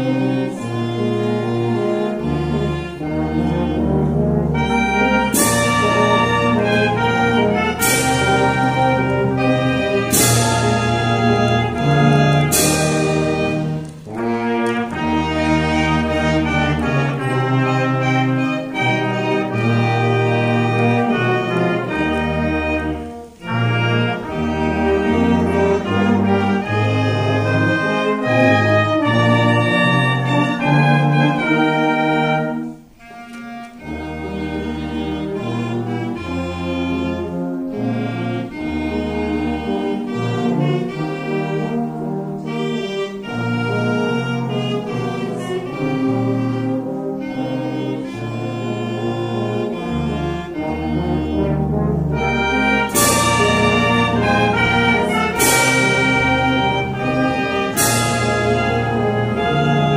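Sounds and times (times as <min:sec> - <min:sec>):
tuba bass notes: 0:00.0 - 0:59.9
wind band playing a tune: 0:00.0 - 0:59.9
cymbal crash: 0:12.4 - 0:14.2.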